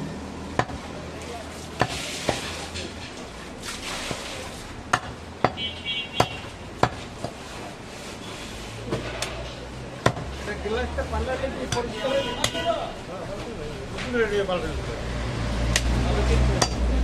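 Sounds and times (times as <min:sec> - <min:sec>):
cleaver chopping meat on wood: 0:00.5 - 0:00.8, 0:01.8 - 0:02.6, 0:04.9 - 0:05.6, 0:06.2 - 0:07.4, 0:10.0 - 0:10.3.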